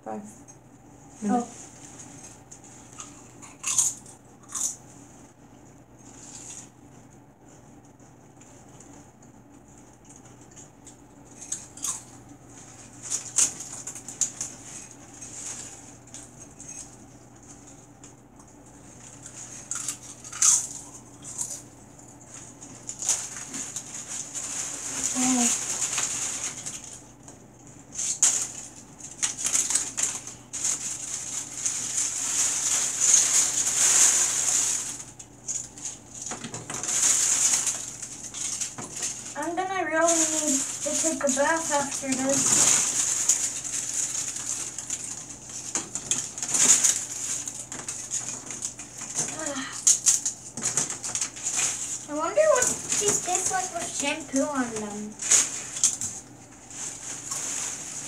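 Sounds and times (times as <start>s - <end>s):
potato chips crackling and crunching: 2.8s - 4.8s, 10.0s - 58.0s.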